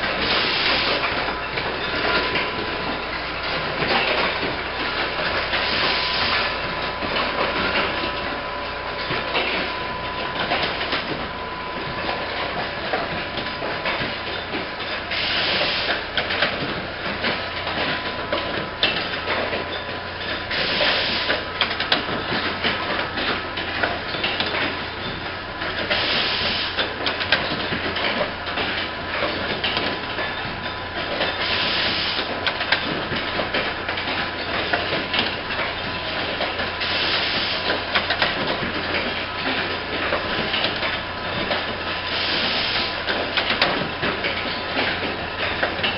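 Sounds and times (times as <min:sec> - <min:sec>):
machine clattering: 0:00.0 - 0:45.9
pneumatic air hiss: 0:42.1 - 0:42.9.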